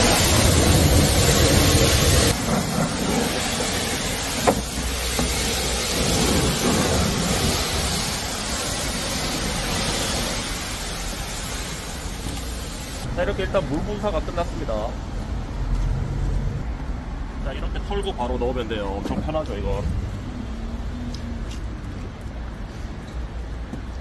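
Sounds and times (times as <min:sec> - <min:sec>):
pressure washer spraying car: 0:00.0 - 0:13.1.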